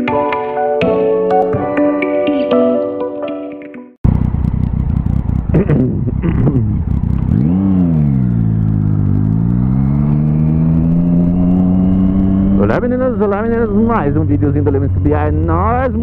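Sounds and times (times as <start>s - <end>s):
motorcycle engine revving: 4.0s - 16.0s.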